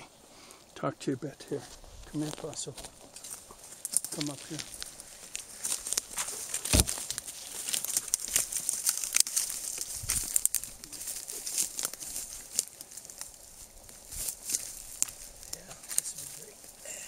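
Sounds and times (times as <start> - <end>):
twigs crackling underfoot: 0.1 - 17.0
heavy thump: 6.6 - 7.0.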